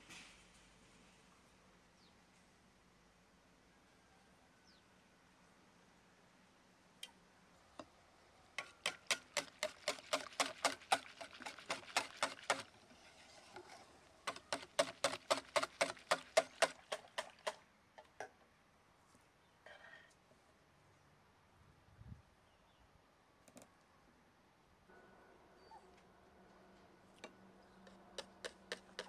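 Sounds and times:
whisk clicking against bowl: 8.6 - 12.7, 14.3 - 17.6, 27.8 - 29.0.

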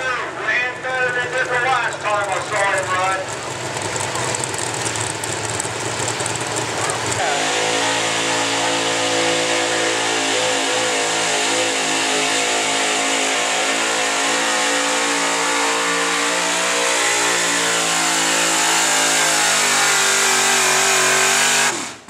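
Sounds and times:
truck engine at high revs: 0.0 - 22.0.

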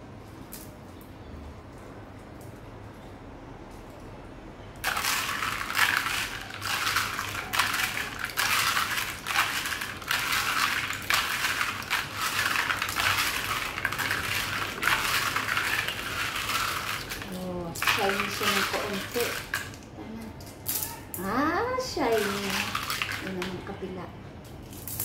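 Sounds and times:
pebbles clattering in water: 4.8 - 19.8, 22.0 - 23.6, 24.8 - 25.0.

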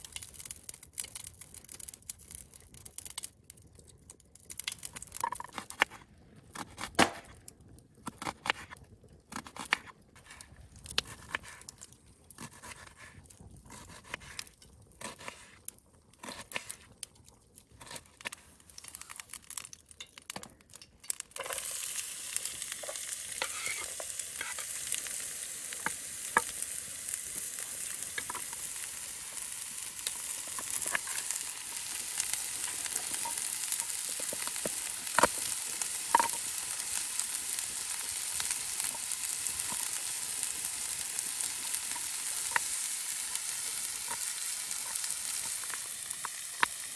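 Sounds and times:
sharp clicks and pops: 0.0 - 6.0, 27.3 - 36.5, 41.5 - 46.9
onion sizzling in frying pan: 17.7 - 46.9.

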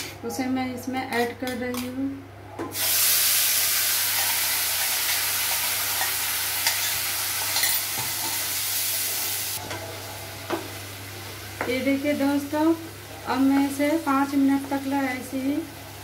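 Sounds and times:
paste sizzling in hot oil: 2.8 - 9.6.

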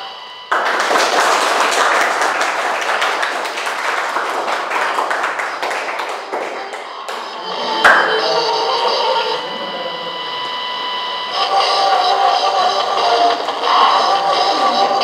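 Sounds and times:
students applauding: 0.5 - 10.5.

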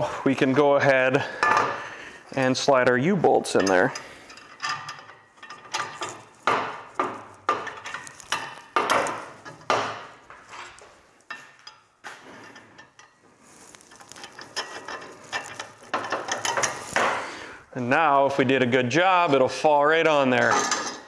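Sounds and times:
metal bolts clinking and knocking: 3.3 - 17.2, 20.4 - 21.0.

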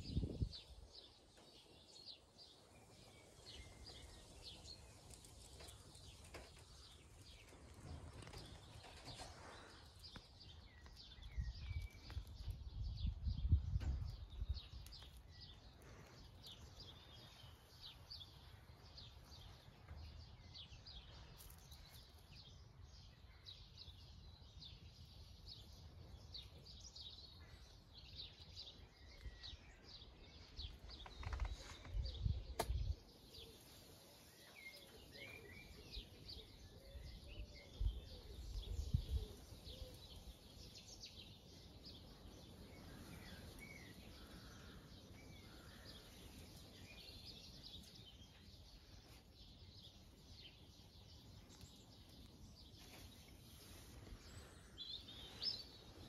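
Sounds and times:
songbirds chirping and trilling: 0.0 - 56.0
sharp click: 32.6 - 32.8.

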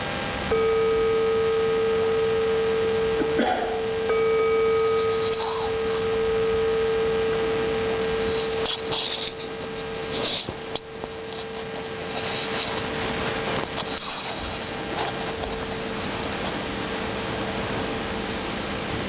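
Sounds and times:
meditation bell ringing: 0.4 - 18.7
clothing rustling: 4.6 - 17.2.

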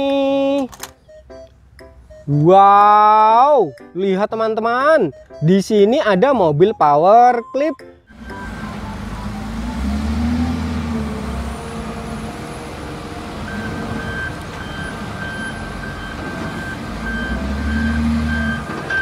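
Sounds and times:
backup alarm beeping: 1.0 - 1.5, 2.1 - 2.7, 6.6 - 10.2, 13.4 - 19.0
diesel engine revving: 8.1 - 19.0.

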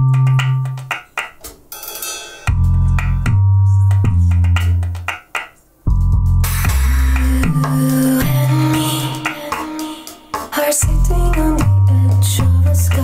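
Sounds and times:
electronic drum kit: 0.0 - 13.0
deep sustained bass notes: 2.5 - 4.8, 5.9 - 9.1, 10.8 - 13.0
cymbal crash: 6.4 - 7.3.

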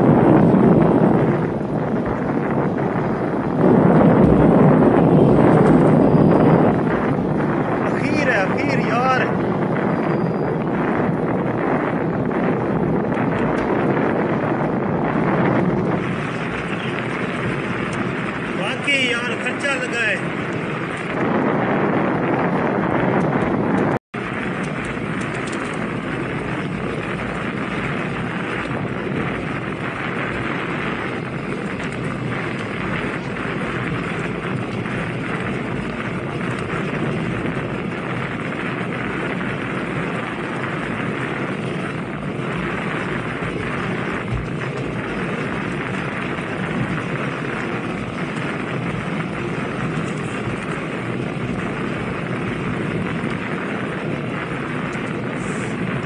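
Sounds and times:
wind buffeting microphone: 0.0 - 56.0.

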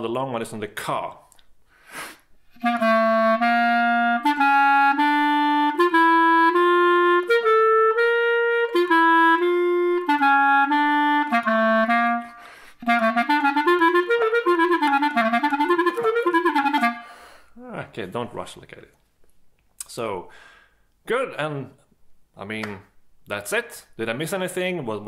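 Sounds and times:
clarinet playing scale exercise: 2.4 - 17.8.

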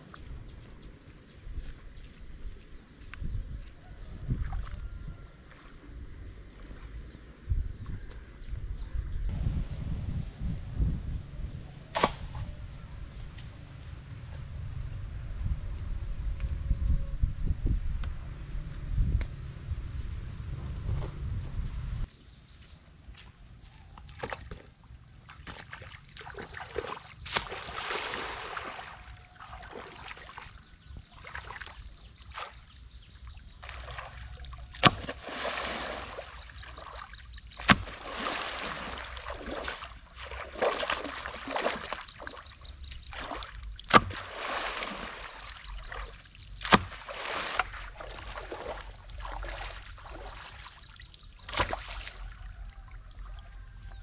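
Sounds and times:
water splashing and sloshing: 24.0 - 52.7.

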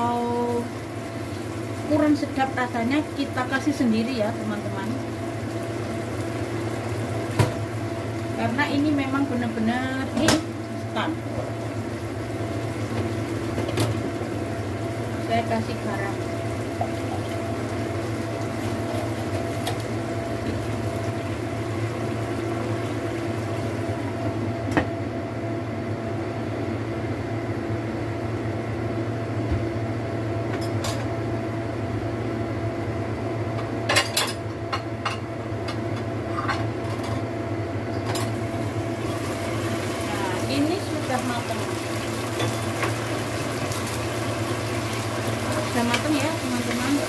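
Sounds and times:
sauce simmering in a wok: 0.6 - 8.4, 38.4 - 47.0.

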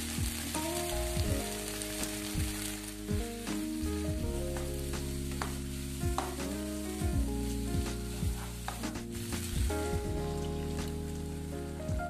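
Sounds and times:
egg and sausage sizzling: 0.0 - 12.0
soft background music: 0.0 - 12.0
wooden spatula scraping pan: 7.4 - 9.6.

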